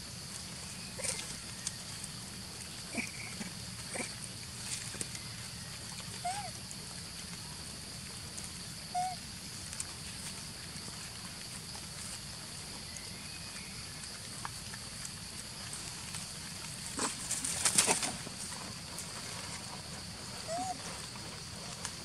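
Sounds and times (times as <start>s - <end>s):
outdoor background hum: 0.0s - 22.0s
monkeys running over dry leaves: 9.7s - 22.0s.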